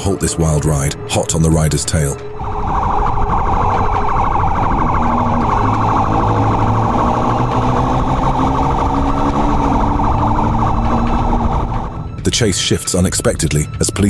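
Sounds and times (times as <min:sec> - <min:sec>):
police siren warbling: 0:00.0 - 0:12.3
motorcycle engine running: 0:04.2 - 0:12.2.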